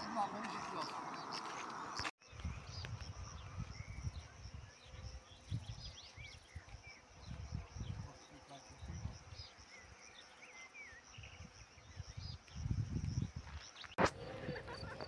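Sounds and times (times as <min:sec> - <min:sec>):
insects buzzing: 0:00.0 - 0:15.0
wind on microphone: 0:01.8 - 0:08.2, 0:08.8 - 0:09.4, 0:11.2 - 0:15.0.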